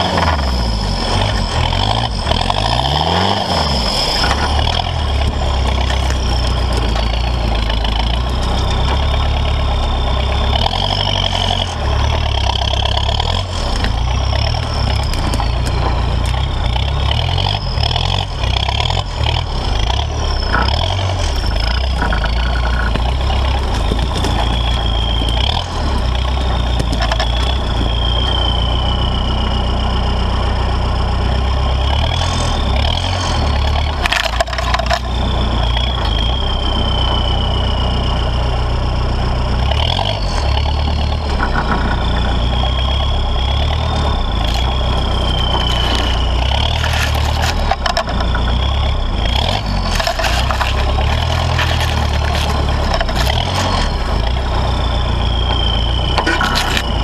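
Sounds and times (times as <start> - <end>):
high whine: 0.0 - 31.7, 33.5 - 57.0
diesel engine running low: 0.0 - 57.0
branches scraping and snapping: 1.1 - 9.4, 10.6 - 19.0, 20.6 - 28.4, 33.0 - 36.0, 43.7 - 48.7, 49.3 - 54.4, 56.2 - 57.0.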